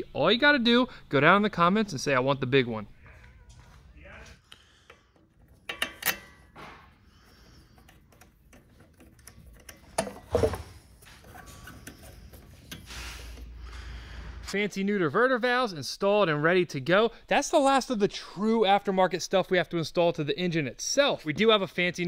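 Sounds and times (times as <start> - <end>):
metal clinks: 5.5 - 6.6
ratchet clicks: 5.6 - 6.4.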